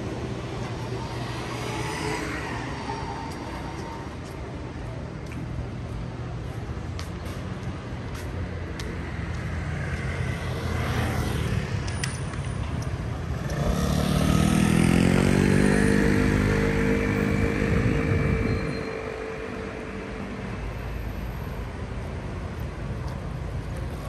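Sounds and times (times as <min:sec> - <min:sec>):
street traffic: 0:00.0 - 0:24.0
vehicle engine passing close: 0:13.3 - 0:20.8.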